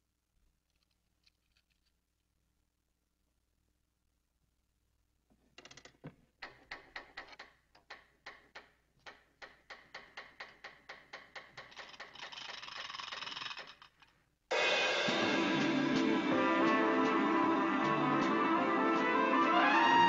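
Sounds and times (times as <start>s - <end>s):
clockwork mechanism ticking: 6.4s - 14.1s.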